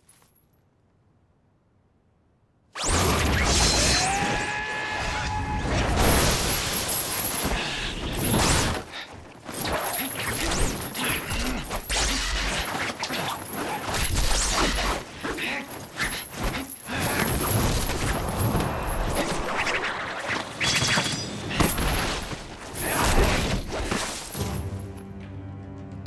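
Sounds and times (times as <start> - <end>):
fight hits and clatter: 20.6 - 24.5.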